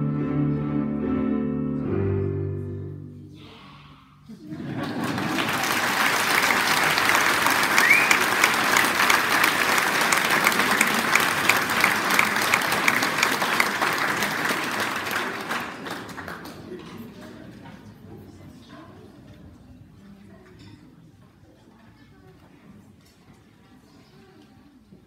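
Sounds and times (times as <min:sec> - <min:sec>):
audience applauding: 0:04.5 - 0:17.2.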